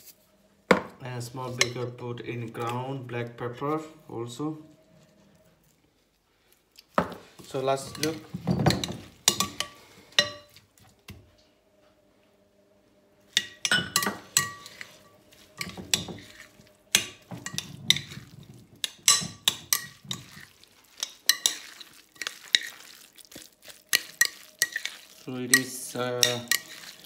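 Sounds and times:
metal utensil clinking on glass bowl: 7.7 - 10.6, 13.4 - 22.8, 23.9 - 27.0.

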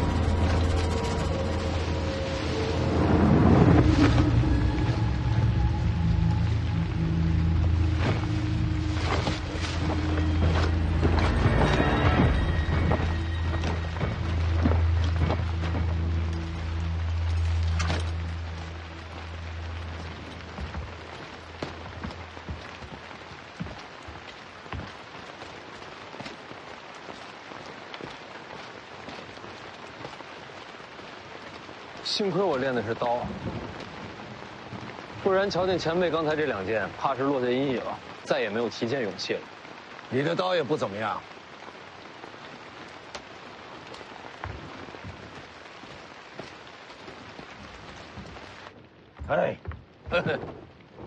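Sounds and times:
low hum: 0.0 - 22.7
heavy rain falling: 0.0 - 51.0.

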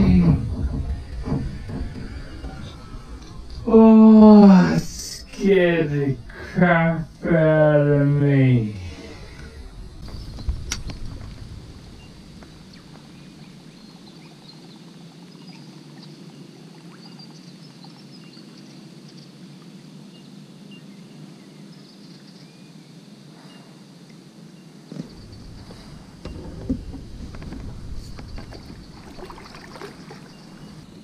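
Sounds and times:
water washing against hull: 0.0 - 18.1, 24.9 - 31.0.

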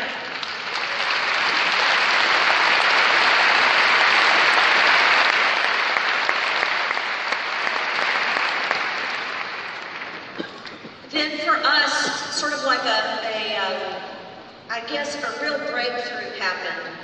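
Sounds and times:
large audience applauding: 0.0 - 11.1.

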